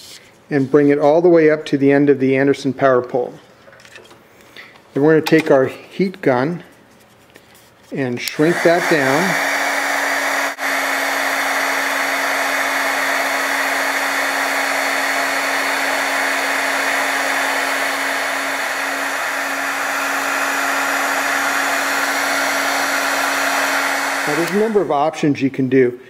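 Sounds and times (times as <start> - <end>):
heat gun fan rushing air: 8.0 - 25.4.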